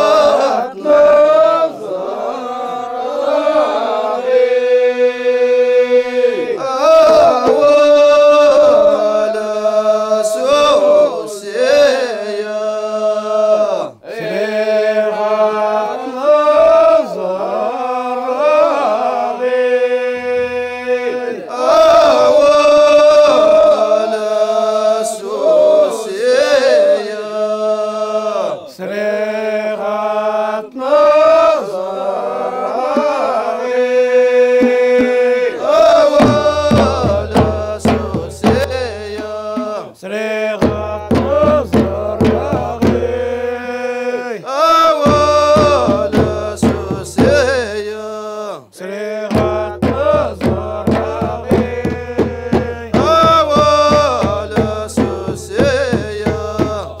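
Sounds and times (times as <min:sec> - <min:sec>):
men chanting in unison: 0:00.0 - 0:57.0.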